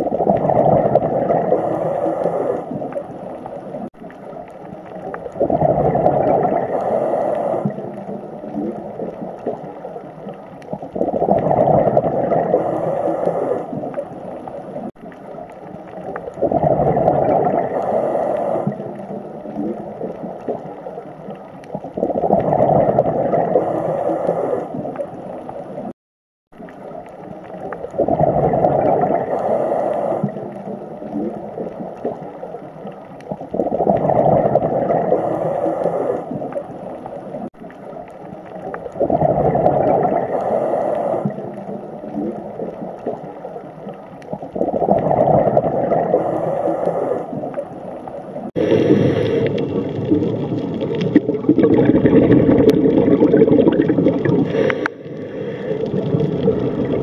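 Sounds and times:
water swelling and falling: 26.6 - 57.0.

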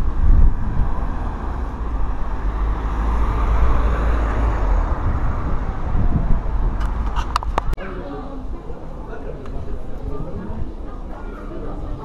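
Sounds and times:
wind buffeting microphone: 0.0 - 7.8
street and traffic noise: 0.0 - 12.0.

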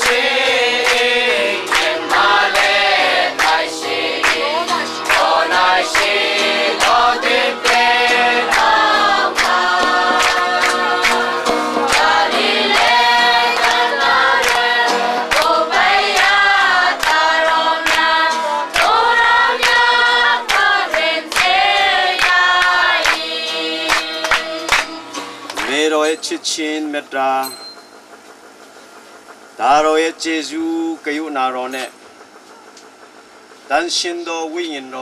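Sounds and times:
hand-claps keeping the beat: 0.0 - 26.2
congregation singing a hymn: 0.0 - 27.0.

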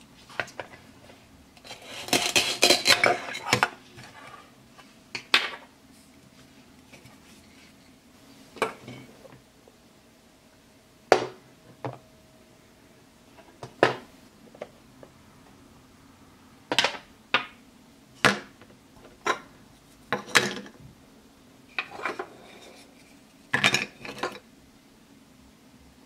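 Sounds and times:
plastic toys dropping into pot: 23.5 - 24.4.

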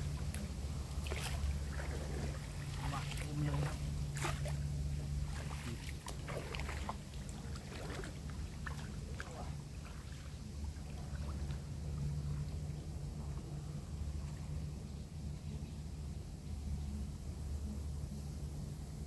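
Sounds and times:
water splashing and sloshing: 0.0 - 14.9
steady low rumble: 0.0 - 19.0.

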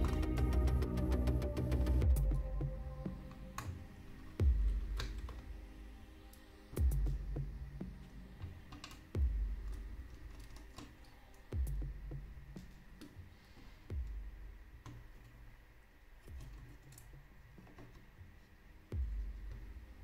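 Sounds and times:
electronic music with deep bass: 0.0 - 6.1, 6.7 - 10.6, 11.5 - 13.0, 19.0 - 20.0.

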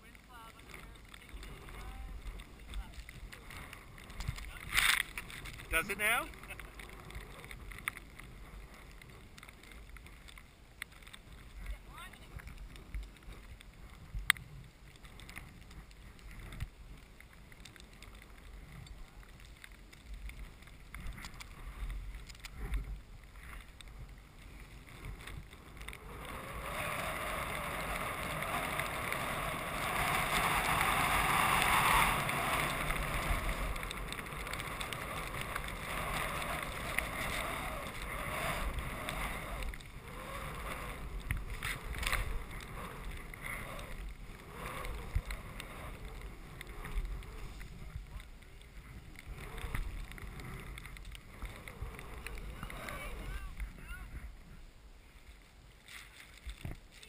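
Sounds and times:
skis hissing through powder snow: 0.6 - 9.9, 20.0 - 54.1.

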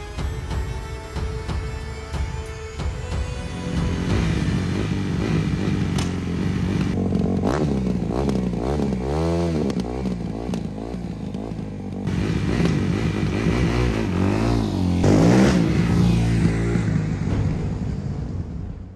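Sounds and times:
engine throttle blips: 3.6 - 18.6
motorcycle engine idling: 3.9 - 15.0.

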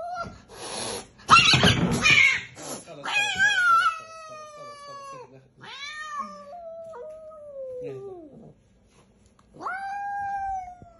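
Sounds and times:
cat growling yowls: 1.3 - 8.5, 9.5 - 10.9.

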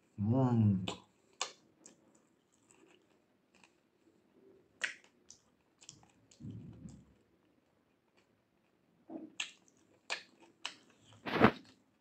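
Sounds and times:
faint chewing: 0.8 - 12.0
wet mouth clicks and smacks: 0.9 - 3.0, 4.8 - 7.2, 9.2 - 11.1
fingers picking through food: 4.8 - 7.2, 8.0 - 12.0.

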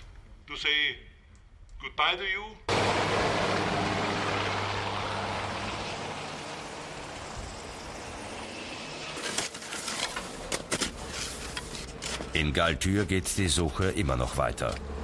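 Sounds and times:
aircraft engine drone: 2.7 - 9.2.

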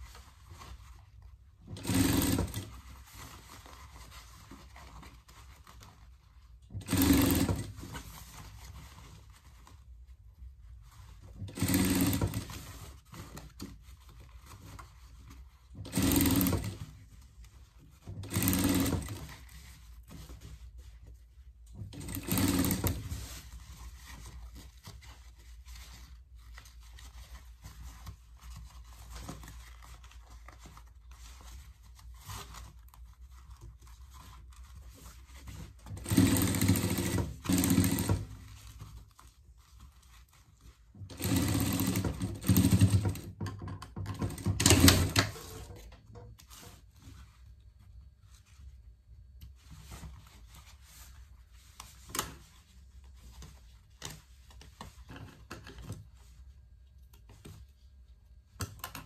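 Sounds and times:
fabric handling: 0.0 - 43.0, 44.8 - 58.6
sewing machine stitching: 1.6 - 3.3, 6.7 - 8.4, 11.3 - 13.6, 15.7 - 17.0, 18.0 - 19.6, 21.8 - 23.5, 35.8 - 38.7, 41.0 - 46.8.

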